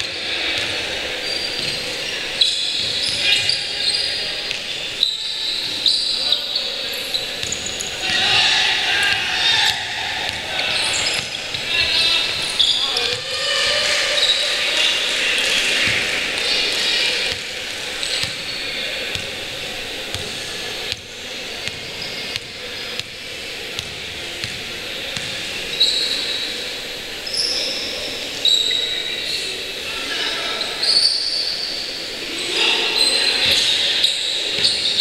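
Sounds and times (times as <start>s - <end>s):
sneakers squeaking on court: 0.0s - 14.5s, 15.7s - 26.5s, 33.1s - 35.0s
players' voices echoing: 0.0s - 35.0s
basketball bouncing: 7.4s - 8.3s, 18.2s - 18.4s, 20.1s - 23.2s, 23.8s - 25.4s.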